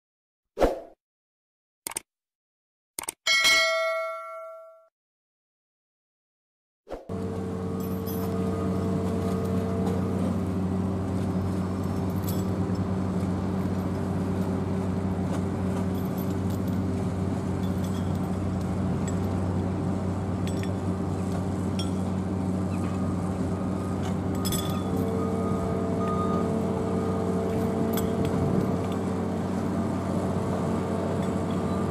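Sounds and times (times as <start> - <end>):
engines and machinery drone: 7.1 - 31.9
metallic clinks and knocks: 24.3 - 25.0.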